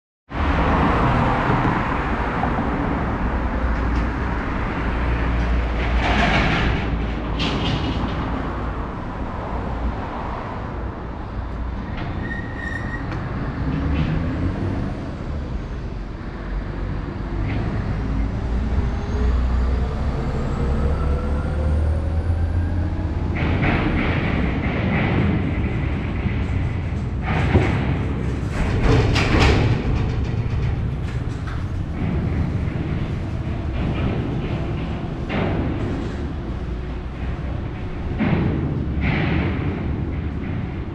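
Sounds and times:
traffic rumble: 0:00.3 - 0:40.9
knocks and rattles: 0:03.6 - 0:08.8, 0:23.2 - 0:40.9
vehicle whine speeding up: 0:18.0 - 0:24.5.

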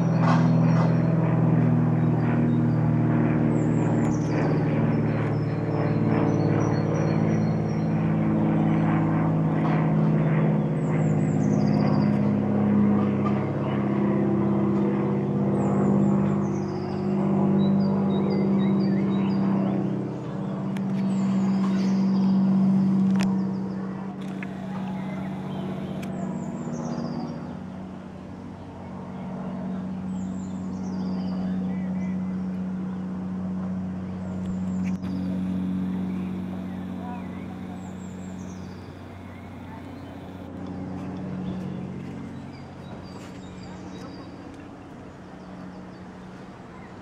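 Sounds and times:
propeller plane engine drone: 0:00.0 - 0:47.0
bird singing: 0:02.0 - 0:08.1, 0:15.7 - 0:27.5, 0:34.4 - 0:44.4.

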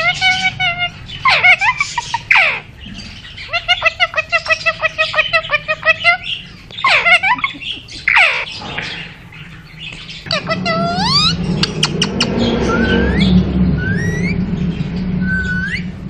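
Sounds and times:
parakeet screeching and calling: 0:00.0 - 0:16.0.

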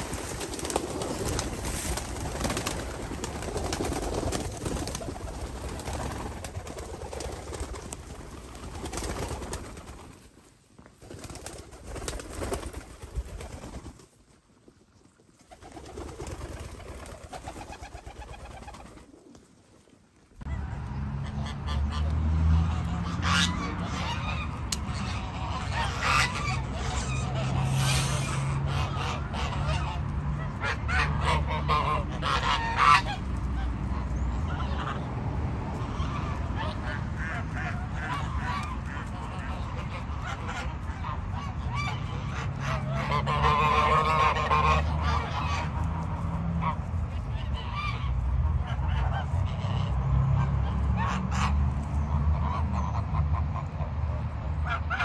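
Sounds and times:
geese honking: 0:21.2 - 0:35.1, 0:35.7 - 0:55.0.

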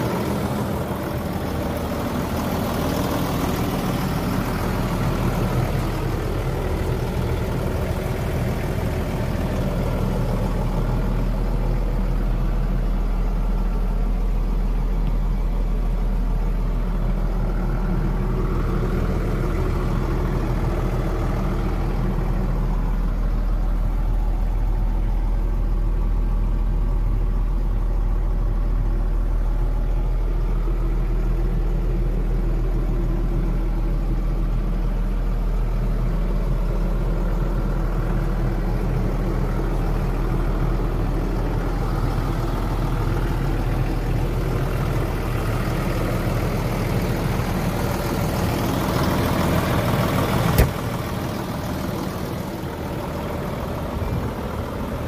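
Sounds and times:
tractor diesel engine idling: 0:00.0 - 0:55.0.

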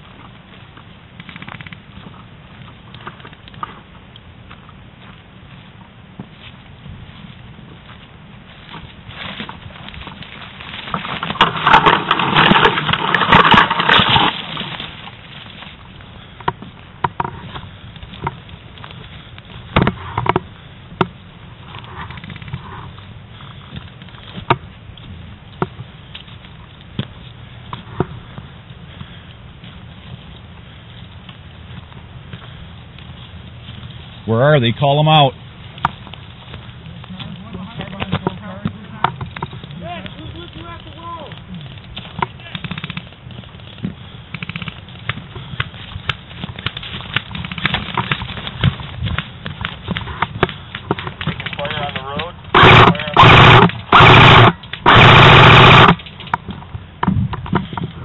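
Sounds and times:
rustle of movement through brush: 0:00.0 - 0:58.0
sharp clicks: 0:01.2 - 0:02.0, 0:37.1 - 0:57.8
airsoft guns firing: 0:50.9 - 0:56.1.

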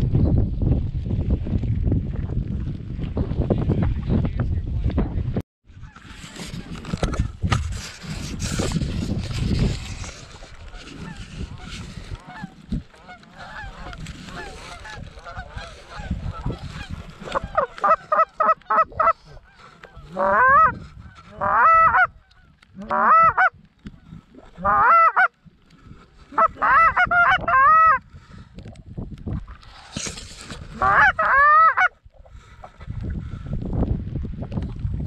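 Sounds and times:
goose honking: 0:10.9 - 0:23.6, 0:24.6 - 0:25.3, 0:26.3 - 0:28.0, 0:30.7 - 0:31.9.

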